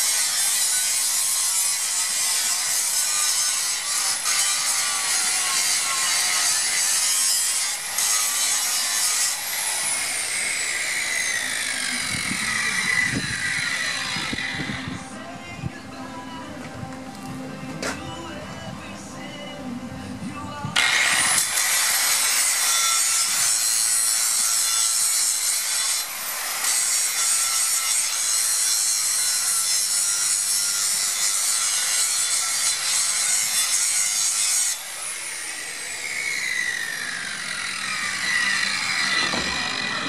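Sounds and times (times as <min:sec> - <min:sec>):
grinder whining and grinding metal: 0:00.0 - 0:16.4, 0:20.2 - 0:40.0
grinder winding down: 0:20.8 - 0:22.7, 0:34.9 - 0:40.0.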